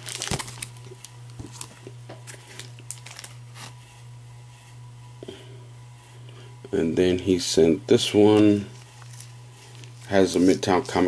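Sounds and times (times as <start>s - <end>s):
plastic bag crinkling: 0.0s - 3.8s, 8.3s - 11.0s
steady low hum: 0.0s - 11.0s.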